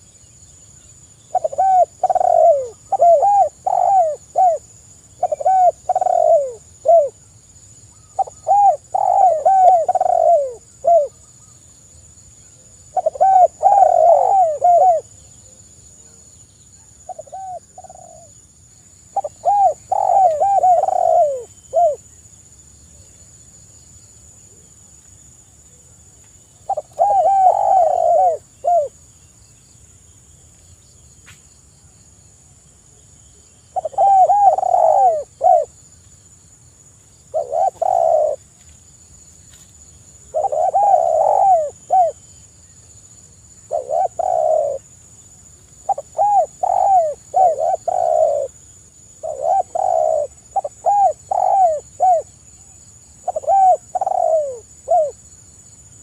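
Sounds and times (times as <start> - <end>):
dove cooing: 1.3 - 7.2, 8.0 - 11.2, 12.9 - 16.2, 17.0 - 18.3, 19.1 - 22.0, 26.6 - 29.0, 33.7 - 35.8, 37.3 - 38.4, 40.3 - 42.3, 43.7 - 44.9, 45.8 - 48.6, 49.2 - 52.3, 53.2 - 55.2.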